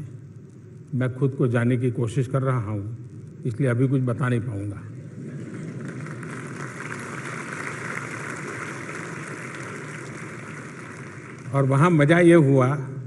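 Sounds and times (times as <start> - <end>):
large audience applauding: 5.3 - 12.0.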